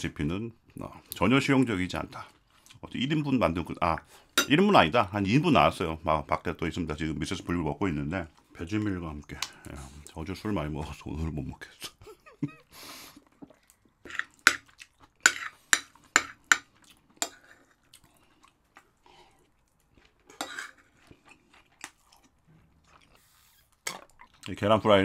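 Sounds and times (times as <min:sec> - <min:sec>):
chewing: 0:02.1 - 0:02.9, 0:13.1 - 0:24.6
spoon scraping a plate: 0:14.0 - 0:16.6, 0:20.3 - 0:21.1.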